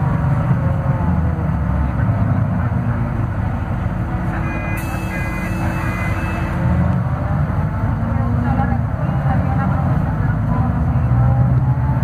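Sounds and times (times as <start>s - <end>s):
bus diesel engine pulling: 0.0s - 12.0s
short high electronic beeps: 4.5s - 6.6s.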